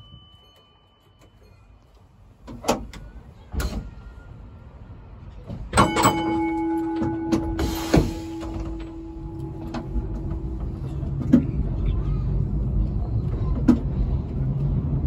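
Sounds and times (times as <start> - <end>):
tram hum: 0.0 - 15.0
clunks: 5.3 - 12.1
tram knocks: 5.4 - 12.0.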